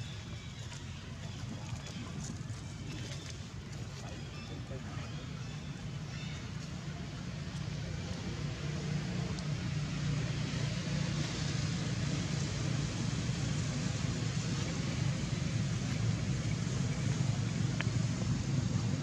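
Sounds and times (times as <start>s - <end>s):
road traffic hum: 1.9s - 19.0s
vehicle engine running: 5.6s - 19.0s.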